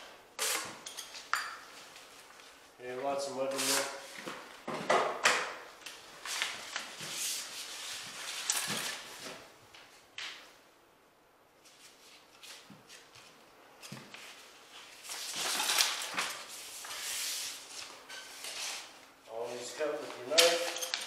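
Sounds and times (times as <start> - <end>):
paper tape rustling and scraping: 0.4 - 1.2, 3.5 - 4.4, 5.8 - 9.4, 11.6 - 21.0.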